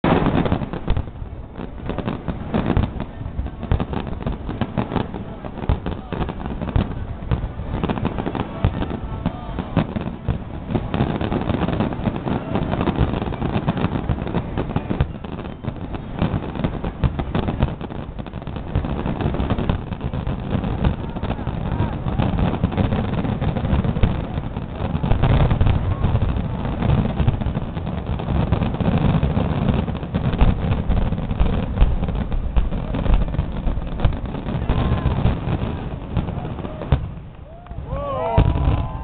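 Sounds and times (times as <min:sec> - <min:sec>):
fireworks bursting: 0:00.0 - 0:39.0.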